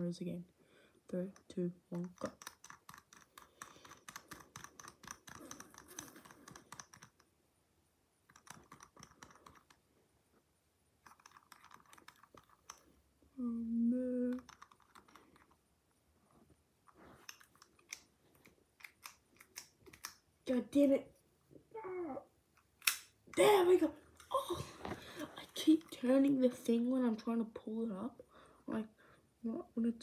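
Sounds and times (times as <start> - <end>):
padlock dial ratcheting clicks: 1.3 - 7.3, 8.3 - 9.8, 11.0 - 12.9, 14.4 - 15.6, 17.2 - 20.2
person humming: 13.4 - 14.5.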